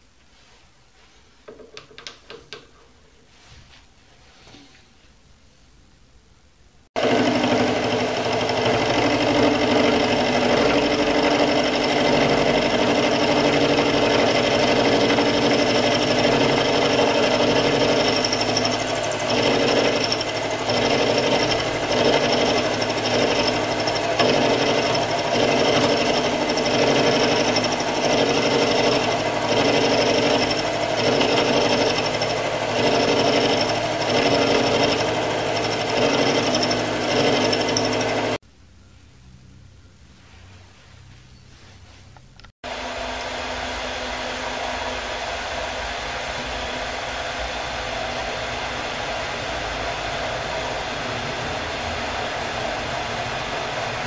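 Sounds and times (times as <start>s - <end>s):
end mill milling metal block: 7.0s - 38.4s
lathe motor whining: 7.0s - 38.4s, 42.7s - 54.0s.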